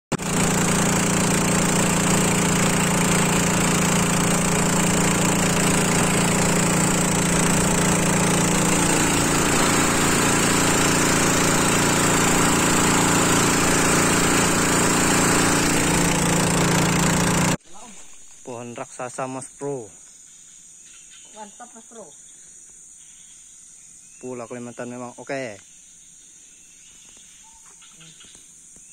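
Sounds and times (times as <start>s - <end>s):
boat engine running: 0.1s - 17.6s.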